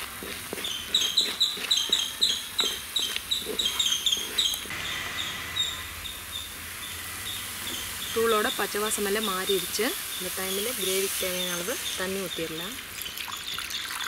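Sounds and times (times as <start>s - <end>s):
bird chirping: 0.6s - 14.0s.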